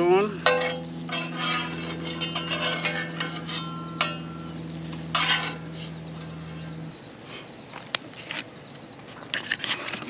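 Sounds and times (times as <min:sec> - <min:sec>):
steady low hum: 0:00.0 - 0:10.0
spatula scraping skillet: 0:00.3 - 0:06.8
metal spatula clinking on skillet: 0:00.4 - 0:05.8.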